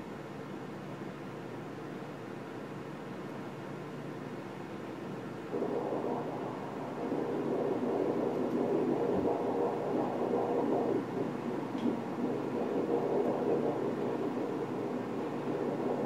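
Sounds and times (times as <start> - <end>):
pulsing ultrasound doppler sound: 5.5 - 16.0.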